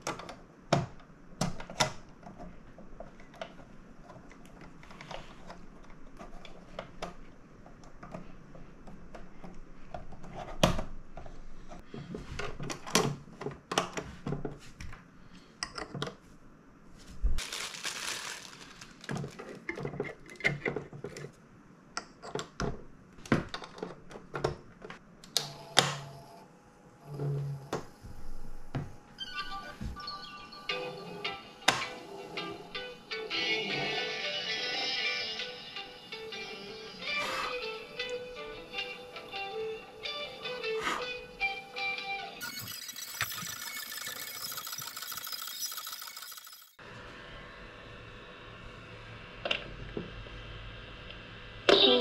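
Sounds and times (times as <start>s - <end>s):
rustling: 16.9s - 19.7s.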